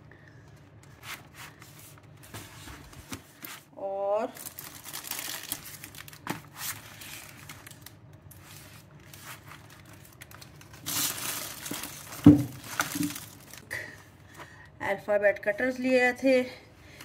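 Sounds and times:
shopping bag rustling: 4.3 - 13.9
cardboard boxes knocking on table: 12.2 - 13.1.

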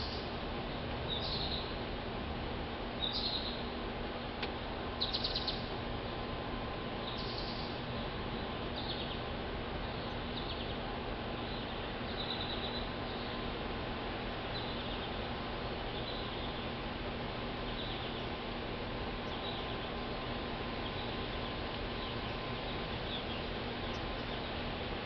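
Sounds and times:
small birds chirping: 0.0 - 1.8, 3.0 - 3.8, 5.0 - 5.8, 7.0 - 13.4, 14.4 - 18.5, 19.2 - 24.8
steady background hiss: 0.0 - 25.0.

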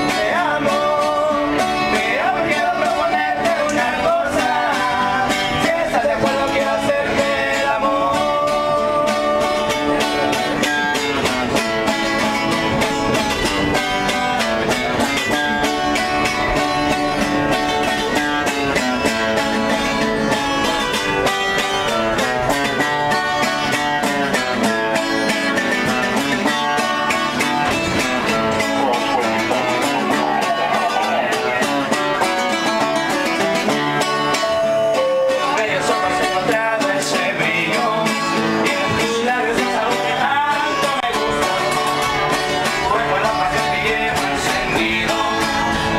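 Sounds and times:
guitars plucked and strummed: 0.0 - 45.9
people singing: 0.0 - 45.9.

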